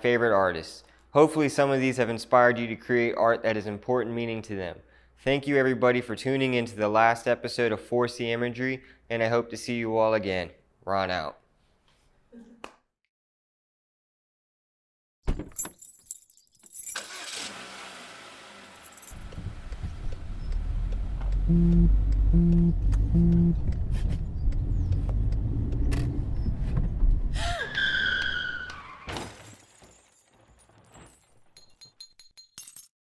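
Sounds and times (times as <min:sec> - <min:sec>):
car engine: 0:17.0 - 0:27.4
road noise: 0:17.1 - 0:28.8
phone vibrating: 0:21.5 - 0:23.6
high falling tyre squeal: 0:27.4 - 0:29.2
car crash: 0:28.7 - 0:31.6.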